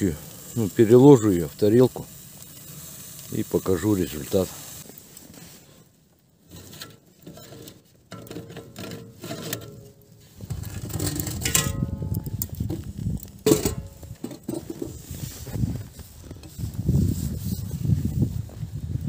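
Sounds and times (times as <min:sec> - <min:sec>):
rustle of handling: 0:00.3 - 0:11.6, 0:13.9 - 0:19.0
wire rack scraping on metal: 0:06.4 - 0:12.2
sharp metallic clanks: 0:11.3 - 0:12.3.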